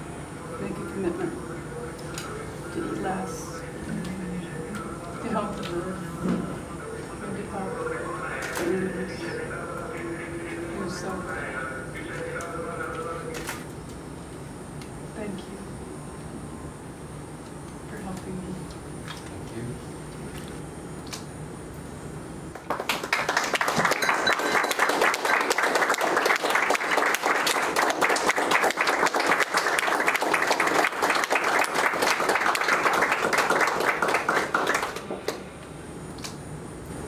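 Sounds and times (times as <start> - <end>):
audience clapping: 22.5 - 35.4.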